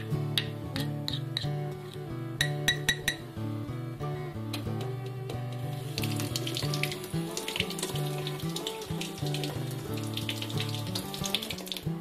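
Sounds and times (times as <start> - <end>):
acoustic guitar music: 0.0 - 12.0
tap water splashing into sink: 4.8 - 12.0.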